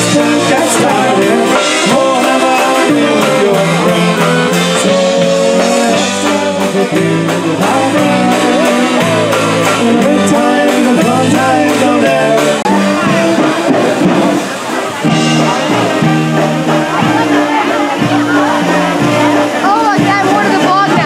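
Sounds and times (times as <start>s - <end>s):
person singing: 0.0s - 14.2s, 15.2s - 21.0s
polka band playing: 0.0s - 21.0s.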